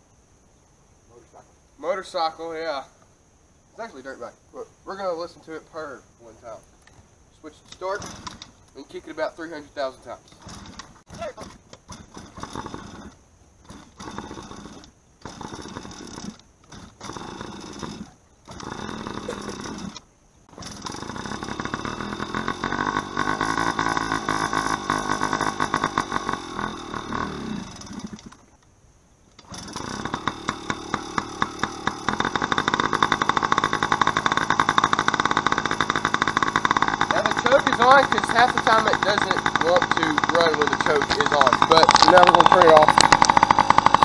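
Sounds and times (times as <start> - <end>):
two-stroke engine kick-starting: 7.6 - 28.6, 29.4 - 44.0.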